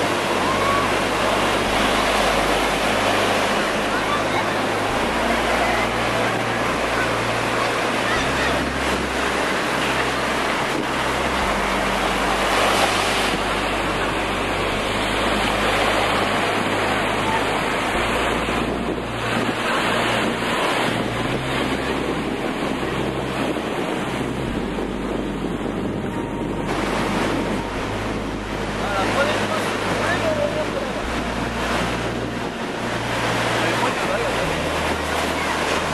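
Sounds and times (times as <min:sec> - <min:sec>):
ocean surf breaking: 0:00.0 - 0:35.9
wind rumbling on microphone: 0:00.0 - 0:35.9.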